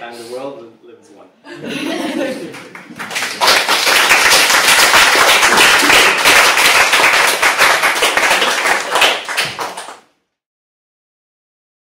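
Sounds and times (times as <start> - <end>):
audience applauding: 2.4 - 10.1.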